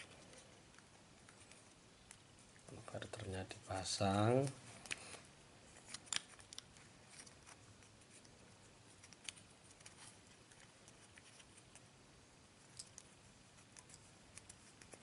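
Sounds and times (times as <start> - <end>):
small plastic clicks and rubs: 0.0 - 3.3, 4.4 - 12.0, 12.6 - 15.0.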